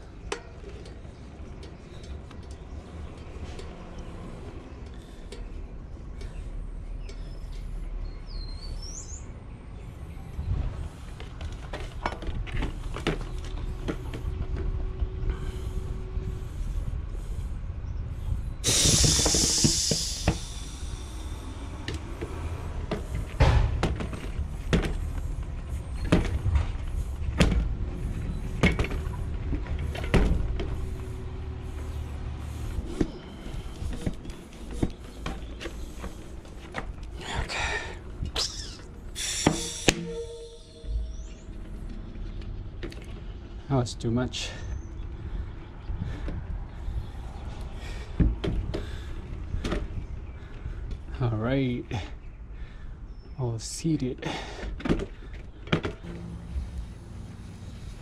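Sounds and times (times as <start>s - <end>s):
air hissing: 18.6s - 21.9s, 38.4s - 41.4s
knocks and clicks on bike tire: 18.7s - 20.7s, 21.8s - 25.2s.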